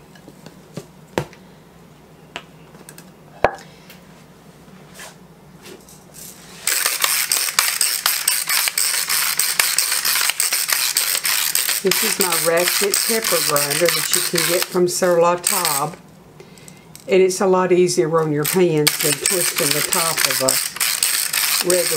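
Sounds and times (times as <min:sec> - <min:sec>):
pepper grinder ratchet clicks: 0:06.6 - 0:16.0, 0:18.4 - 0:21.9.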